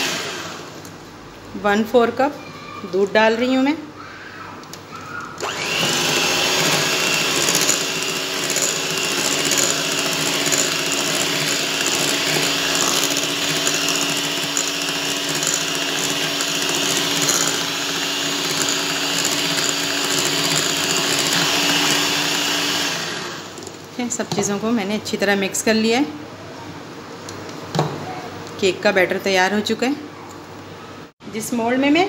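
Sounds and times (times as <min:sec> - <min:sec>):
electric hand mixer whisking batter: 0:00.0 - 0:00.7, 0:05.4 - 0:23.7.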